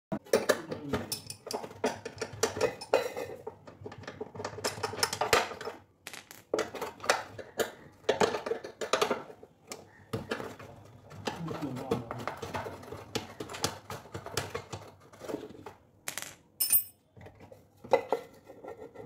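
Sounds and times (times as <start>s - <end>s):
metal parts clinking and clattering: 1.1s - 1.6s, 16.6s - 17.0s.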